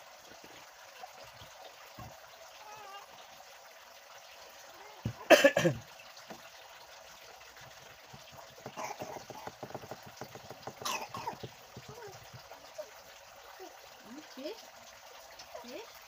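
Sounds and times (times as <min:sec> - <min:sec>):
person coughing: 0:05.2 - 0:05.8, 0:10.8 - 0:11.4
faint clicks and taps: 0:07.5 - 0:12.8.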